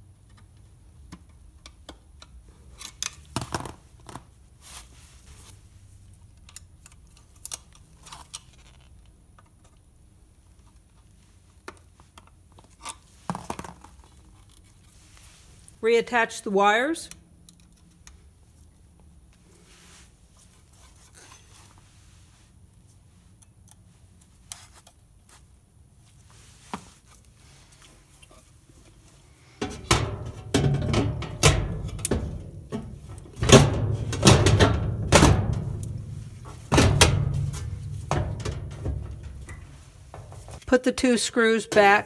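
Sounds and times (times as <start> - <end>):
handling noise: 26.1 - 40.8
metal knocks and clunks: 29.6 - 40.6.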